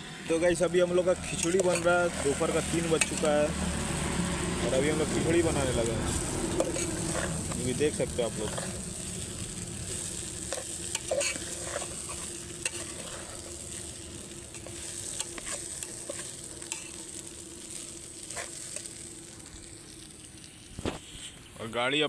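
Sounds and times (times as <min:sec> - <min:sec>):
steady hiss: 0:00.0 - 0:22.0
spoon scraping metal pot: 0:01.2 - 0:02.1, 0:06.5 - 0:07.6, 0:10.5 - 0:13.6.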